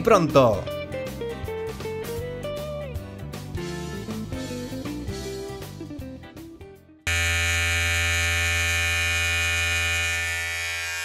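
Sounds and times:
electric hair clippers buzzing: 7.1 - 11.0.

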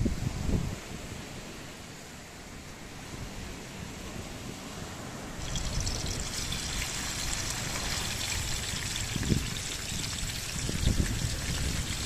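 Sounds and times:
water trickling: 5.4 - 12.0.

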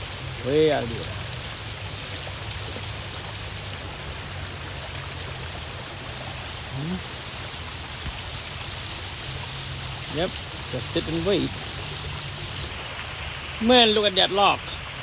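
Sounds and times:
flowing river water: 0.0 - 15.0
person humming: 6.7 - 7.0.

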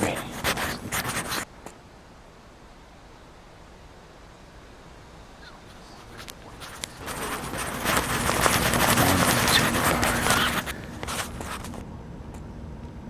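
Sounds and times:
pencil scratching on paper: 0.0 - 1.5, 6.1 - 11.8.

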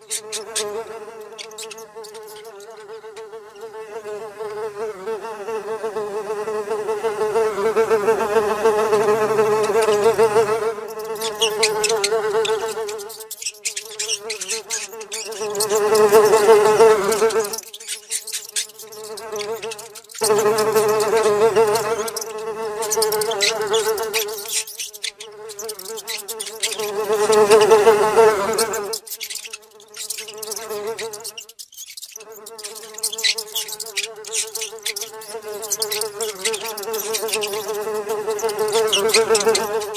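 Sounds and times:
housefly buzzing: 0.0 - 39.9
fast high ticking: 10.9 - 27.9, 28.6 - 39.9.

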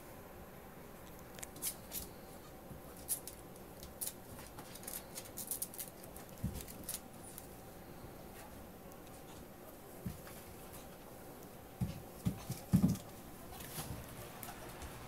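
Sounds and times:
claws clicking on tiled floor: 2.9 - 7.5.

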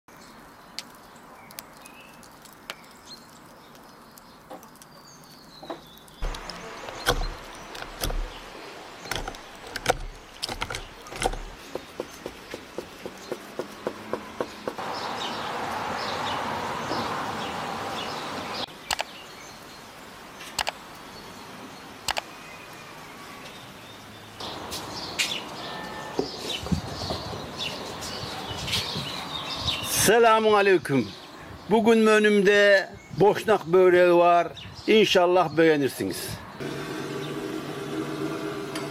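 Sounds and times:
birds chirping: 0.1 - 37.6
watermelon being cut: 5.9 - 14.8.

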